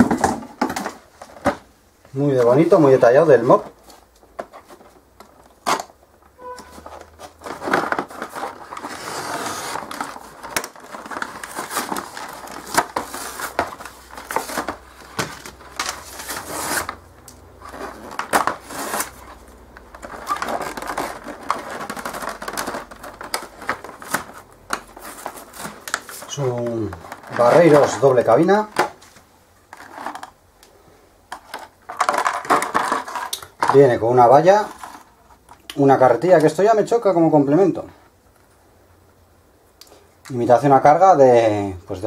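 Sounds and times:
stiff plastic crinkling: 3.4 - 30.4.

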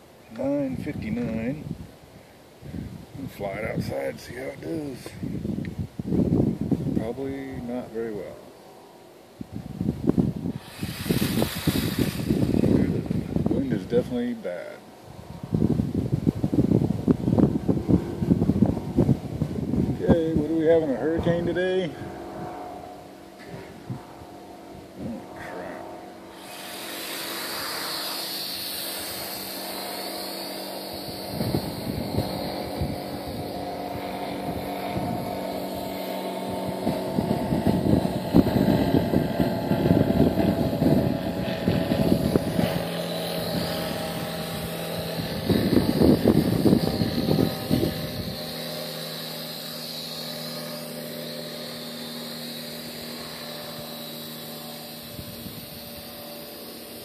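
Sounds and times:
wind buffeting microphone: 0.4 - 8.3, 9.3 - 14.4, 15.0 - 26.5, 30.7 - 49.9, 54.9 - 56.4
toy drone motors whining: 10.5 - 14.7, 25.4 - 57.0.

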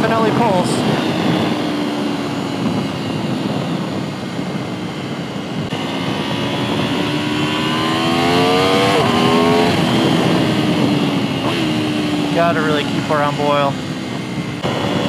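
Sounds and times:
motorcycle engine accelerating: 0.0 - 15.0
wind rush: 0.0 - 15.0.

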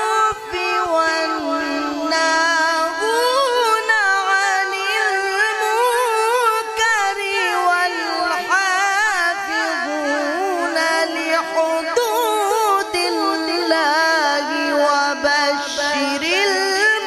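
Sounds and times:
man chanting into microphone: 0.0 - 17.0.

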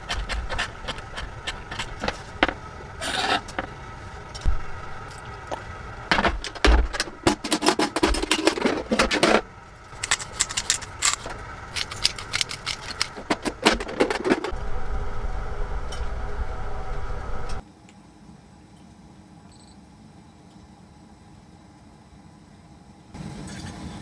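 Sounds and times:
low hum: 0.0 - 17.6
pepper grinder crunching: 9.8 - 14.2.

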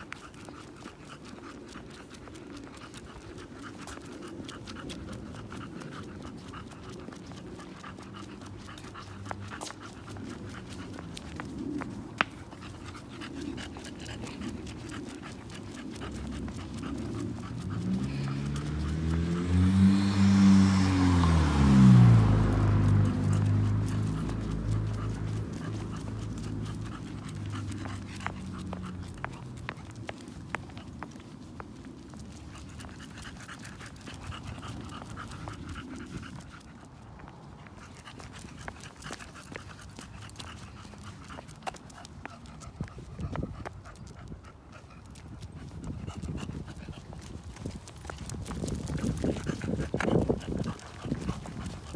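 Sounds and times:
footsteps on concrete: 0.0 - 19.6, 22.8 - 51.9
dog panting: 0.0 - 51.9
car passing by: 16.0 - 30.0.

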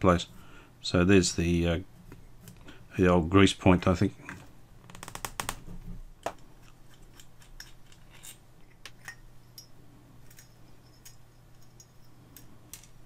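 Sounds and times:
faint steady low hum: 0.0 - 13.0
small metallic clicks and scrapes: 6.3 - 13.0.

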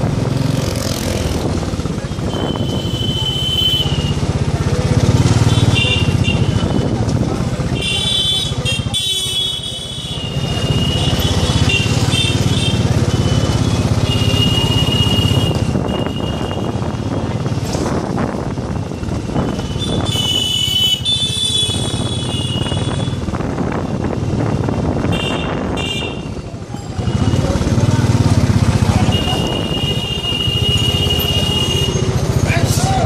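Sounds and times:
vehicle horns honking: 2.2 - 4.2, 5.4 - 6.8, 7.7 - 17.0, 19.4 - 23.2, 25.0 - 26.4, 28.9 - 32.2
motorbike engine running: 10.2 - 32.6.

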